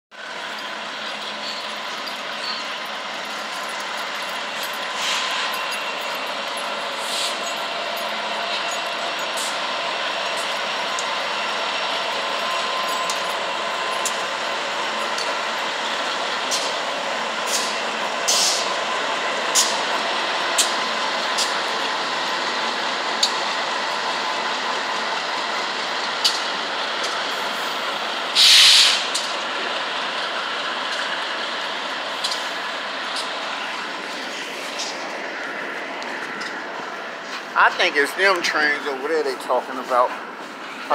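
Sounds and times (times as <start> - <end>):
freight train passing: 0.1 - 40.9
air hissing burst: 28.4 - 29.1.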